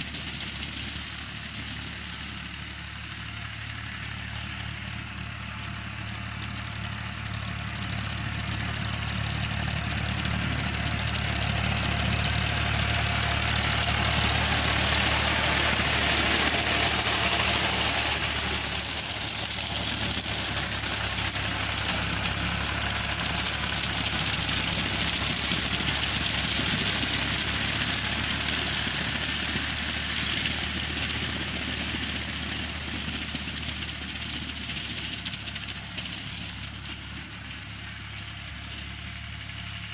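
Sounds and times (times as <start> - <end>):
tractor diesel engine running: 0.0 - 39.9.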